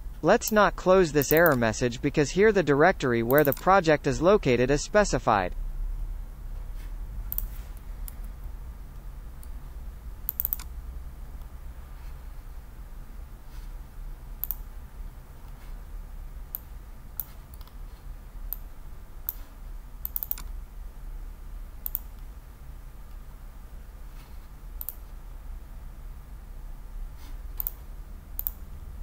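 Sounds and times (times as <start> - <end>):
steady low hum: 0.0 - 29.0
mouse buttons clicking: 1.2 - 1.6, 3.3 - 3.8, 10.3 - 10.7, 19.3 - 20.5.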